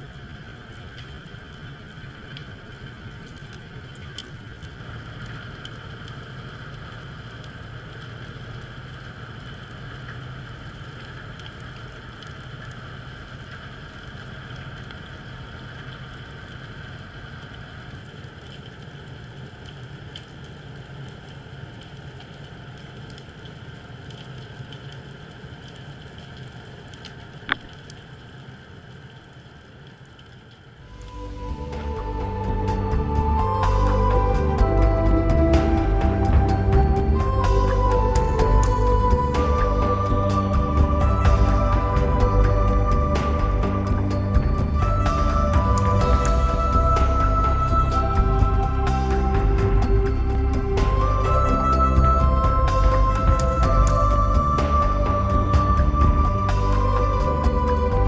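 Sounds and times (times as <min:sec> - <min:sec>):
faint crackling clicks: 0:00.0 - 0:31.2
low hum: 0:30.9 - 0:58.0.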